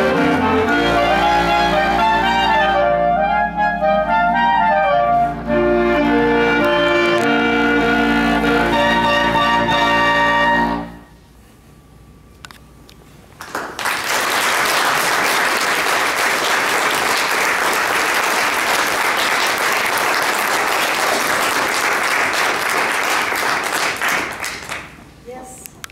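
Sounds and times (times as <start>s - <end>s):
audience applauding: 13.4s - 25.0s.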